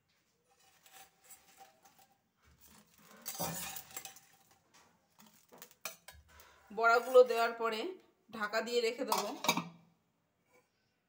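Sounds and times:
metal spoon clinking against pot: 3.2s - 4.4s, 5.6s - 6.3s, 9.1s - 9.7s.

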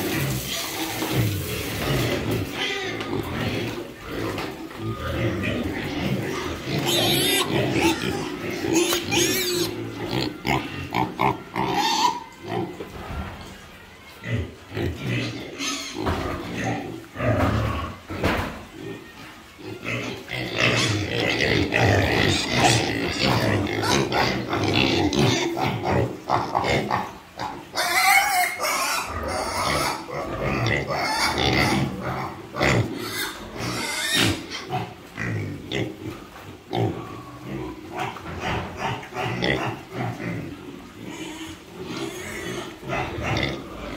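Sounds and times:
piglets grunting: 0.0s - 43.9s
piglet squealing: 6.4s - 10.7s.

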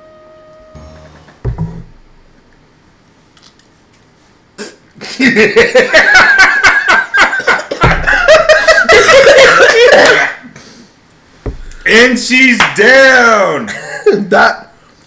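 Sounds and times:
people laughing hard: 5.0s - 10.4s.

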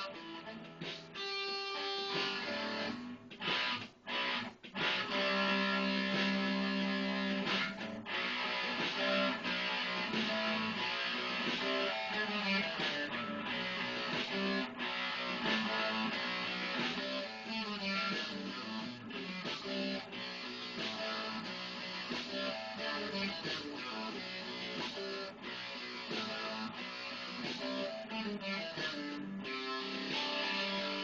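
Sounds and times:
electric guitar rock jam: 0.0s - 31.0s.

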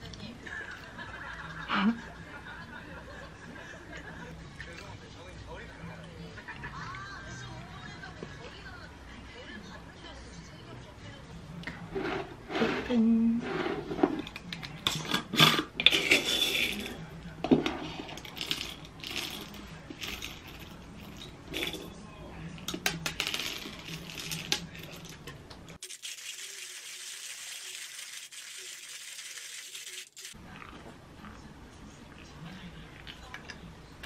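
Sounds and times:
coffee beans rattling: 18.2s - 21.9s, 23.0s - 25.9s.

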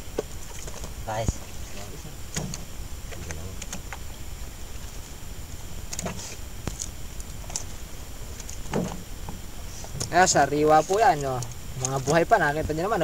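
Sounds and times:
steady low rumble: 0.0s - 13.0s
fish flapping and slapping: 0.2s - 4.0s, 5.8s - 9.0s.

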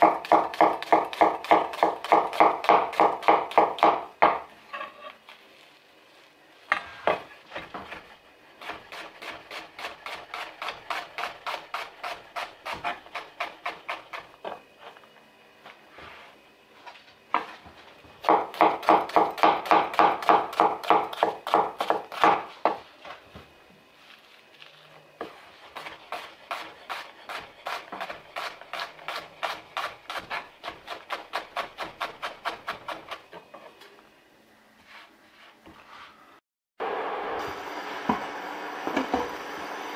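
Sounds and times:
knife chopping on wooden board: 0.0s - 4.4s, 18.2s - 22.8s, 25.8s - 33.4s.

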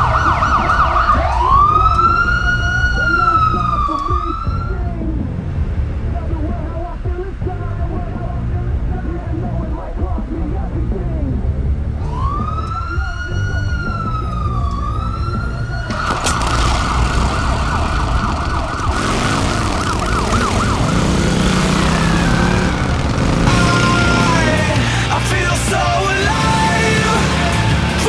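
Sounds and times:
siren wailing and yelping: 0.0s - 4.8s, 12.0s - 24.8s
low steady rumble: 1.5s - 12.8s, 13.4s - 26.3s.

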